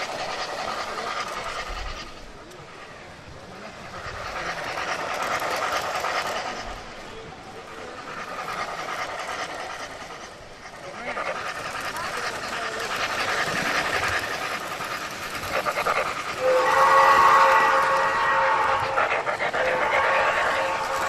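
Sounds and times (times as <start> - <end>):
train rattling: 0.0 - 21.0
train horn: 16.4 - 19.0, 19.7 - 21.0.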